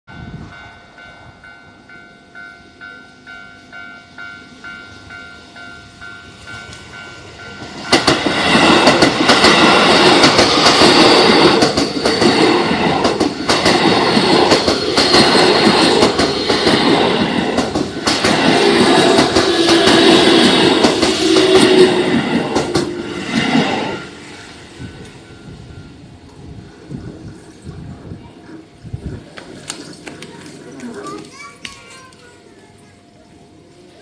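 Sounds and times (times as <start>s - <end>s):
level-crossing warning bell: 0.1s - 26.8s
electric train passing: 0.1s - 34.0s
train wheels clacking on rail joints: 6.5s - 23.8s.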